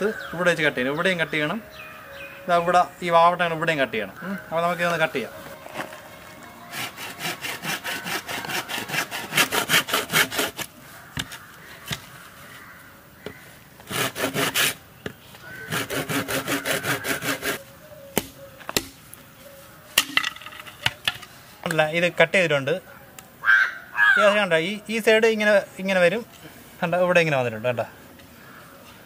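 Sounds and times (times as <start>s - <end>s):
saw cutting through bamboo: 6.6s - 10.7s, 13.8s - 14.8s, 15.5s - 17.6s.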